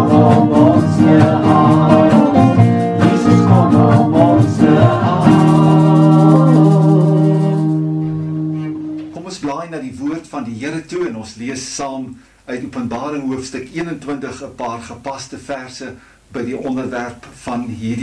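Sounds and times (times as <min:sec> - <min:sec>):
man singing gospel song: 0:00.0 - 0:07.9
strummed acoustic guitar: 0:00.0 - 0:09.2.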